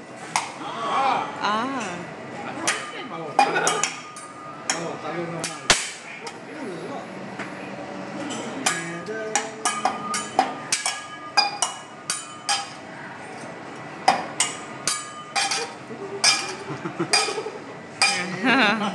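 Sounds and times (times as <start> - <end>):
metal spatulas clanging on griddle: 2.6 - 6.0, 8.3 - 18.4.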